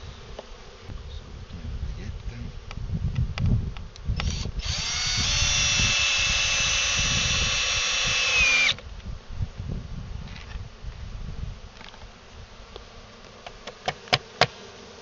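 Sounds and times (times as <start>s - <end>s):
cordless drill driving screw into wood: 4.2s - 8.8s.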